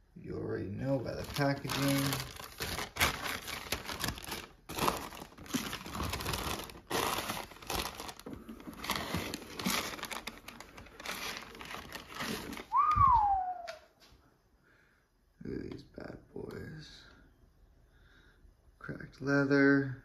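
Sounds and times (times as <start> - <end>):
paper crinkling and rustling: 0.8 - 12.8.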